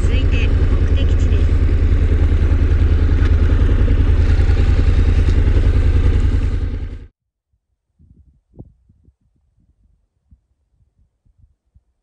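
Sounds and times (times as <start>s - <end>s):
motorcycle engine idling: 0.0s - 7.1s.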